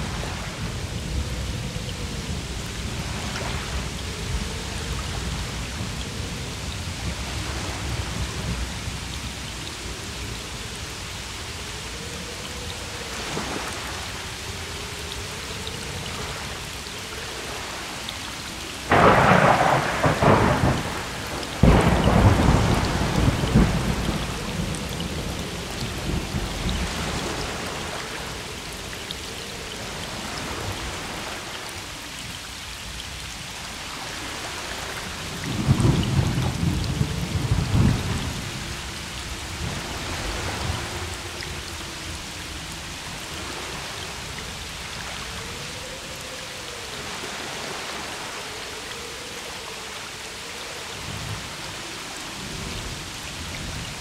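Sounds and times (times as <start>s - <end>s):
steady rainfall: 0.0s - 54.0s
thunder cracking and rumbling: 18.9s - 27.5s, 35.5s - 38.6s.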